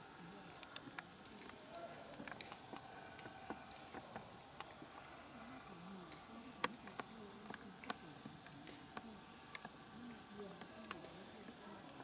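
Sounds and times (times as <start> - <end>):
sharp clicks: 6.6 - 12.0.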